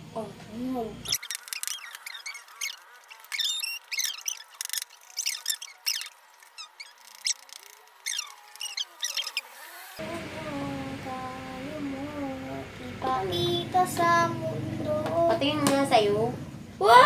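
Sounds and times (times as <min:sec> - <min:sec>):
high-pitched squeaky voices: 0:01.0 - 0:09.6.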